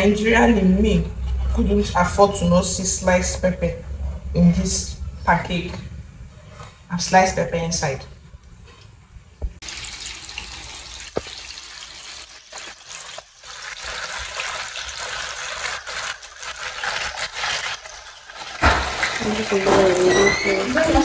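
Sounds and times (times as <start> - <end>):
hot oil sizzling and crackling: 9.6 - 21.0.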